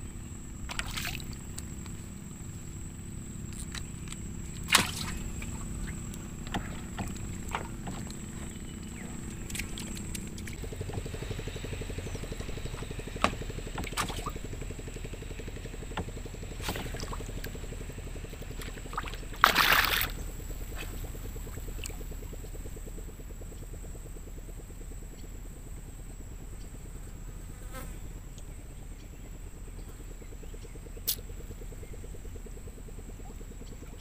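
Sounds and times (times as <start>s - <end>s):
water sloshing and trickling: 0.4s - 22.6s
wooden paddle pulling through water: 0.6s - 2.2s, 2.8s - 22.5s
loud splash: 0.7s - 1.4s, 4.7s - 5.7s, 13.2s - 14.4s, 16.6s - 17.4s, 18.6s - 20.2s.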